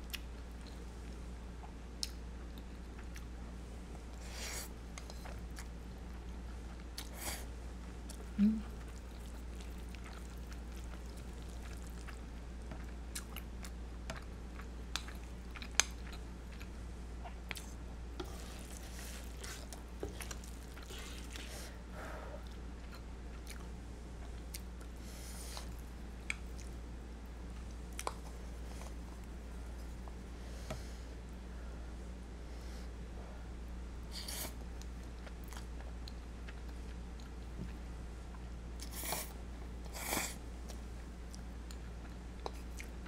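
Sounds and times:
quiet chewing: 0.0 - 3.4, 4.0 - 30.9, 34.1 - 43.0
noodles squishing while stirred: 7.9 - 16.7, 17.3 - 21.8.

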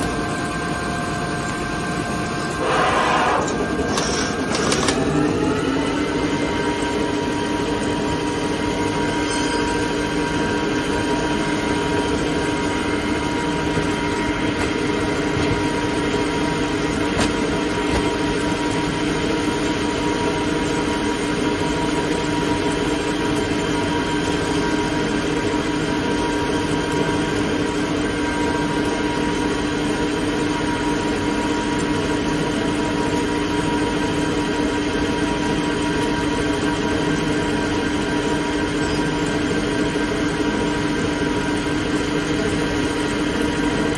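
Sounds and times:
lathe machine humming: 0.0 - 29.8.

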